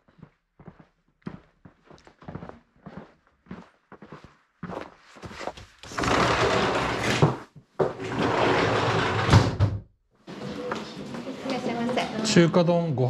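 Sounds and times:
sliding door rumbling along track: 5.9s - 7.4s, 8.0s - 9.7s.

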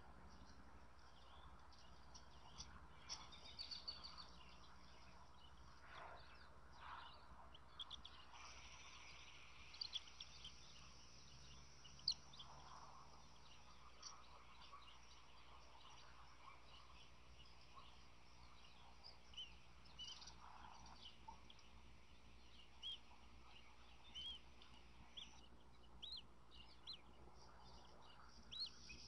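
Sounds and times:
steady low hiss: 0.0s - 29.0s.

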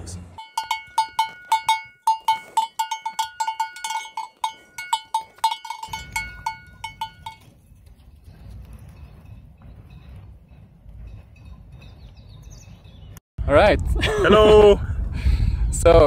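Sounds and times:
cow bell clanking: 0.4s - 13.1s.

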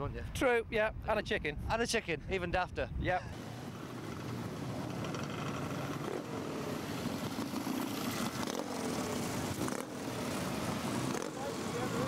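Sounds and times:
motorcycle engines droning: 3.4s - 12.0s.

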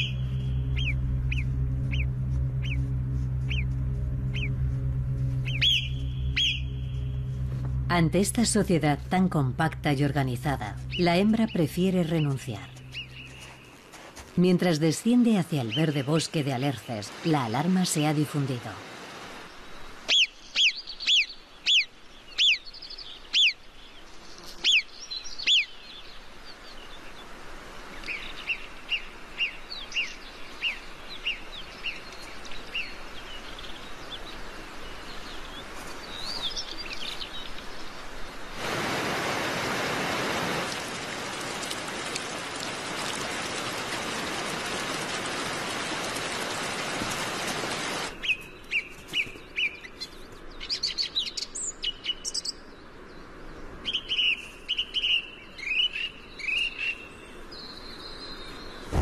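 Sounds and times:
mountain stream rushing: 16.2s - 19.7s, 34.3s - 48.2s.

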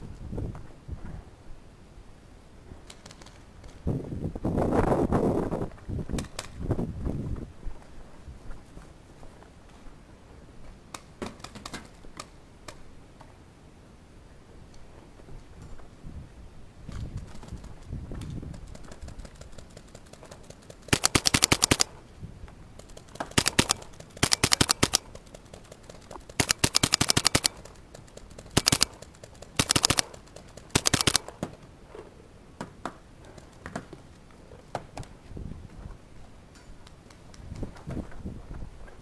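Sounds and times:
paintball marker firing: 20.6s - 22.0s, 22.9s - 31.5s.

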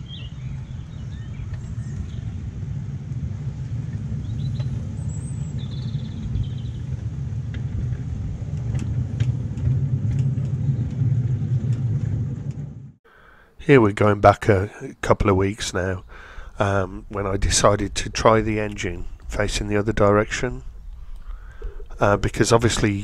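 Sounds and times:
miniature train wheels rumbling: 1.4s - 12.9s.

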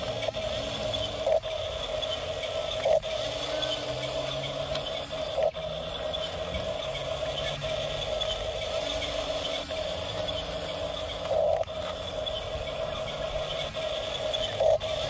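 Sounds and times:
toy bulldozer motors whirring: 0.0s - 15.0s.

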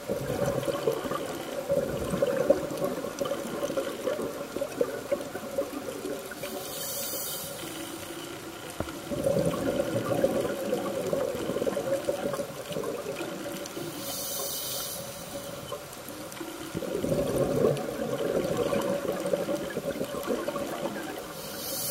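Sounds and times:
bubbling underwater exhalations: 0.0s - 6.6s, 8.9s - 14.0s, 15.7s - 21.9s
regulator inhaled hiss: 6.4s - 8.2s, 13.8s - 15.8s, 21.3s - 21.9s.

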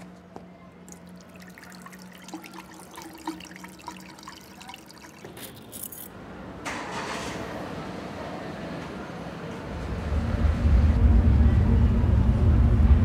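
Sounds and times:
car engine starting: 6.6s - 8.2s.

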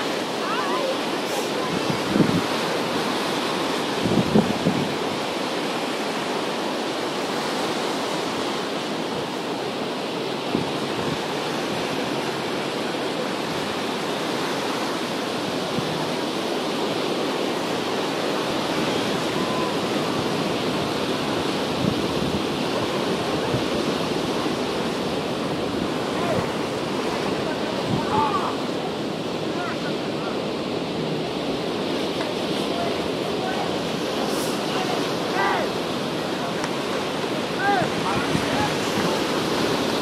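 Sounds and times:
ocean surf breaking: 0.0s - 40.0s.

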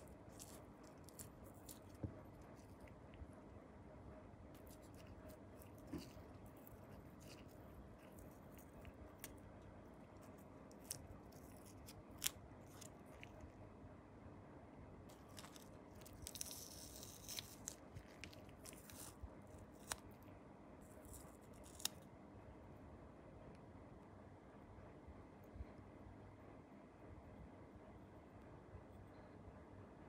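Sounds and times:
masking tape peeling and crinkling: 15.1s - 20.2s.

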